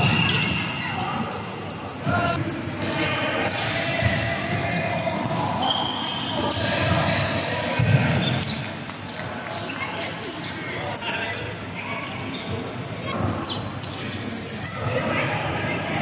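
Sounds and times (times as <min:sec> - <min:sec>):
busy hall din: 0:00.0 - 0:16.0
players' voices: 0:00.0 - 0:16.0
volleyball strikes: 0:06.4 - 0:08.8.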